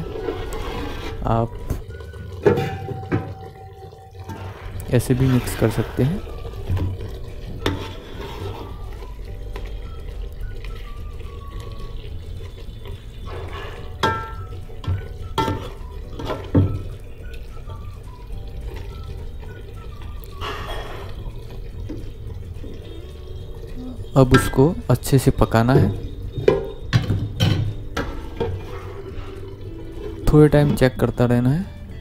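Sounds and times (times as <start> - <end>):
ladle stirring thick curry: 0.0 - 2.5, 4.2 - 9.8
ladle knocking metal pot: 1.0 - 5.8, 13.4 - 17.0, 24.2 - 29.3.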